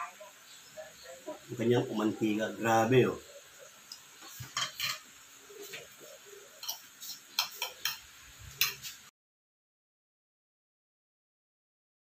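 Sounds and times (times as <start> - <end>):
cutlery clicking on ceramic plates: 3.9 - 5.0, 6.6 - 6.8, 7.4 - 8.0, 8.6 - 9.0.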